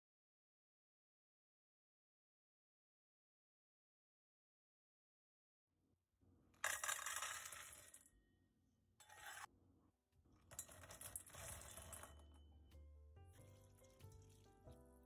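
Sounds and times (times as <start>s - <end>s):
cashews rattling into metal bowl: 10.5s - 12.2s.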